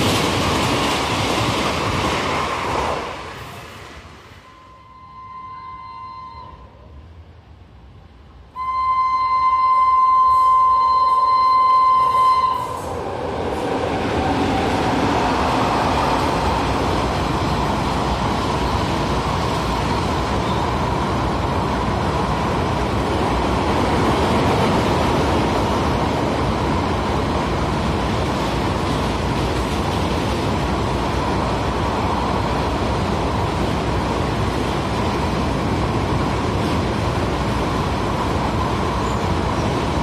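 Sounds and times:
train wagons rumbling on rails: 0.0s - 6.9s, 9.1s - 40.0s
locomotive horn blast: 4.4s - 6.8s, 8.6s - 13.0s.

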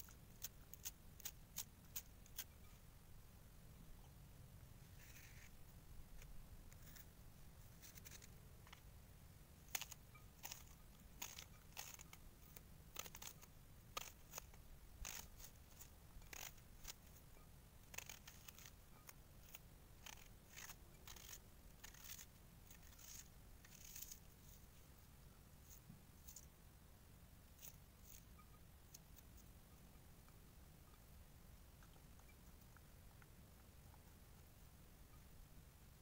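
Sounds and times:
knife slicing onion: 12.9s - 17.2s, 17.8s - 24.2s.

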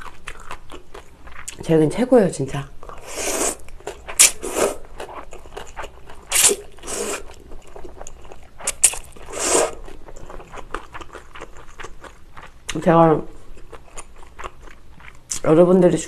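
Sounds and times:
noodles slurped: 2.9s - 7.4s, 8.6s - 9.9s.

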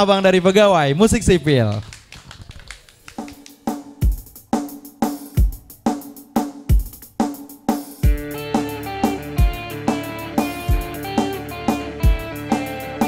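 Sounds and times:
drum kit playing a steady beat: 3.2s - 13.0s
bass guitar: 8.0s - 13.0s
electric guitar: 8.0s - 13.0s.

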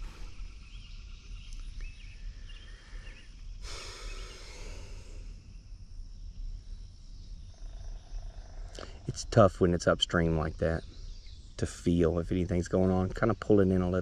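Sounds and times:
low steady rumble: 0.0s - 14.0s
soft rush of noise: 2.2s - 7.4s.

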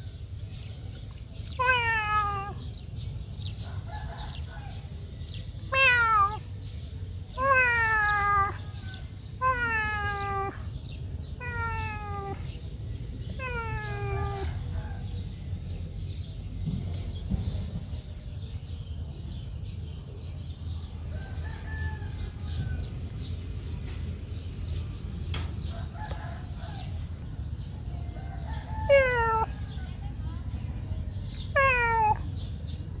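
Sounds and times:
kitten meowing: 1.6s - 2.7s, 5.7s - 6.4s, 7.4s - 8.7s, 9.4s - 10.6s, 11.4s - 12.4s, 13.4s - 14.5s, 28.9s - 29.5s, 31.5s - 32.3s.

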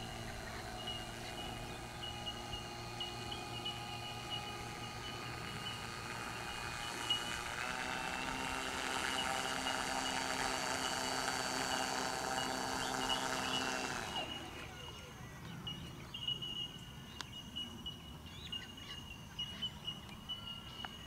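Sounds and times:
model plane motor running: 0.0s - 16.8s.

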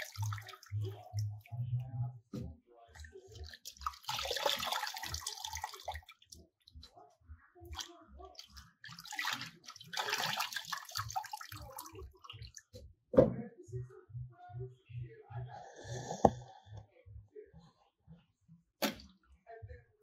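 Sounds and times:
hands splashing water in bowl: 3.4s - 6.4s, 7.7s - 12.6s.

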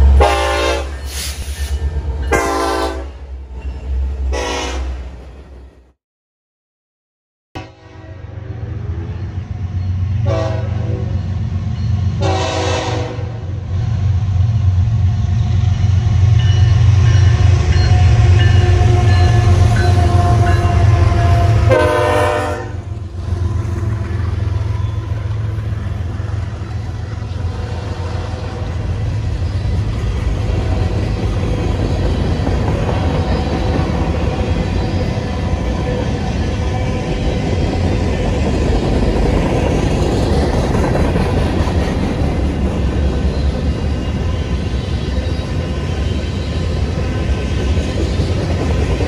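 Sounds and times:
train horn blasts: 0.0s - 1.2s, 2.3s - 3.2s, 4.3s - 5.0s, 7.6s - 8.9s, 10.2s - 11.2s, 12.2s - 13.6s, 17.6s - 23.0s
locomotive engines rumbling: 8.3s - 49.0s
freight cars rolling on rails: 22.8s - 49.0s.

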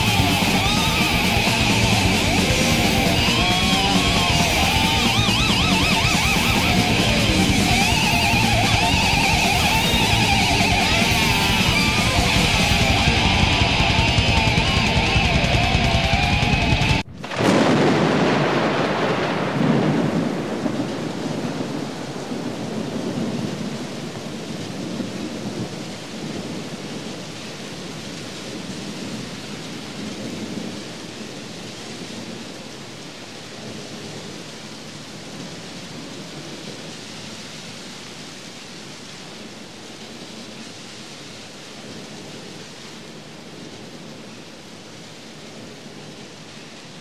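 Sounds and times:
road noise: 0.0s - 17.1s
rain hiss: 0.0s - 47.0s.

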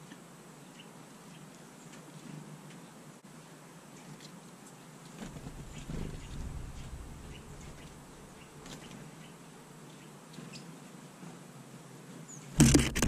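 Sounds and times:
wind buffeting microphone: 5.2s - 8.6s.

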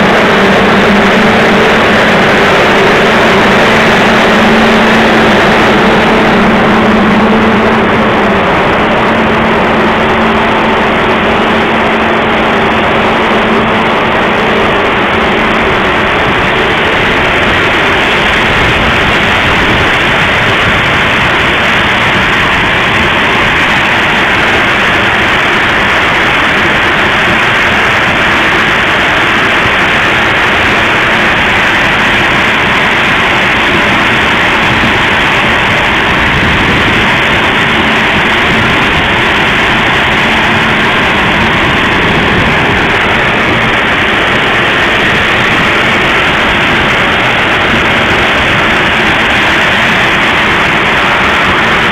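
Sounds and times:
dryer rushing roar: 0.0s - 51.9s
low hum with overtone: 0.0s - 51.9s.

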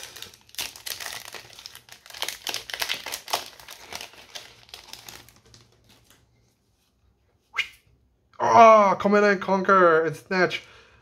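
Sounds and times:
foil wrapper crinkling: 0.0s - 6.2s.

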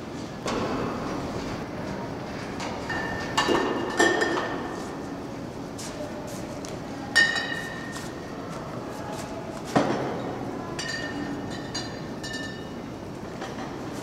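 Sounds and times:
glass clinking: 10.8s - 12.8s.

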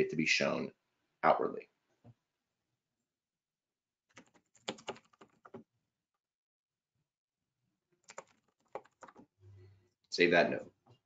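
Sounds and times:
typing on computer keyboard: 4.1s - 5.6s, 8.0s - 9.3s.

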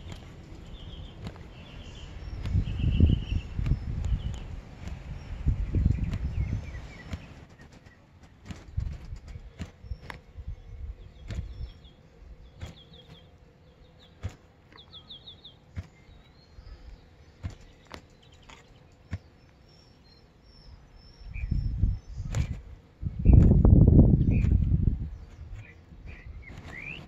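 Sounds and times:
small bird chirping: 0.0s - 8.0s, 8.6s - 27.0s
tortoise claws scuffling in soil: 0.0s - 19.9s, 22.0s - 27.0s.

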